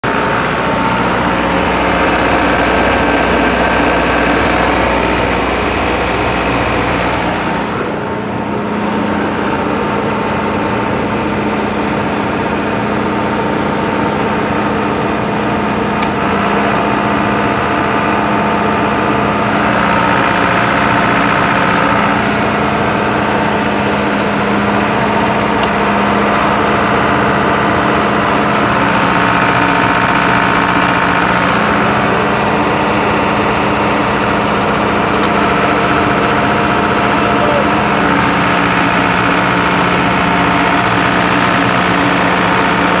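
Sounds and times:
diesel generator running: 0:00.0 - 0:43.0.

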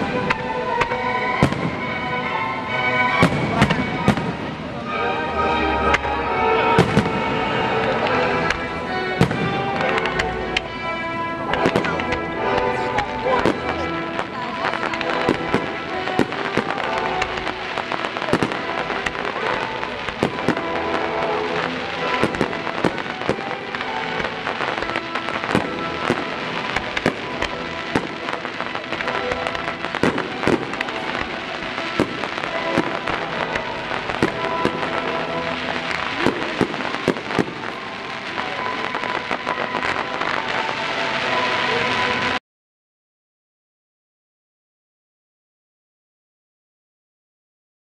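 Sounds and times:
firework crackling: 0:00.0 - 0:42.4
firework shells bursting: 0:13.4 - 0:40.4.

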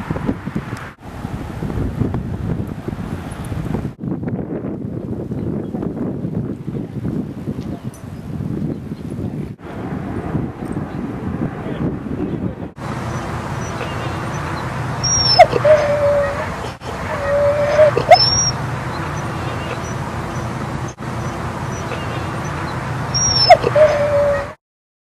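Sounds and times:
dog whining: 0:13.1 - 0:20.6, 0:21.2 - 0:24.6.

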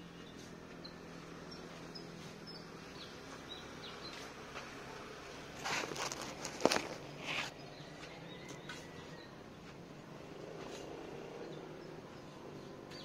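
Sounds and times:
phone handling rustle: 0:05.6 - 0:07.1.

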